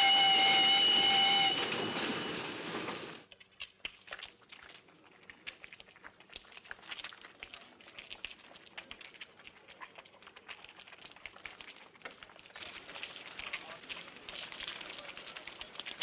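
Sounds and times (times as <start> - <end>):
crowd footsteps on rough ground: 8.3 - 16.0.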